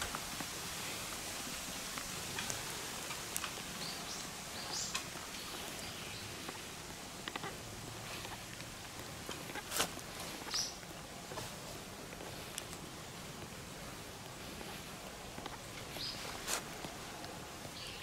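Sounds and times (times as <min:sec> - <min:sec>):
steady outdoor hiss: 0:00.0 - 0:18.0
faint clicks: 0:01.9 - 0:11.5
small birds chirping: 0:02.4 - 0:18.0.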